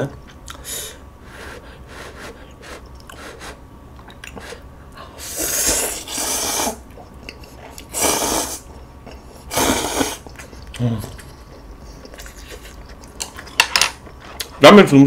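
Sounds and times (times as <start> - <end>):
mouth clicks and chewing: 2.7 - 3.2, 4.0 - 4.5, 10.2 - 14.6
noodles being slurped: 5.2 - 11.3.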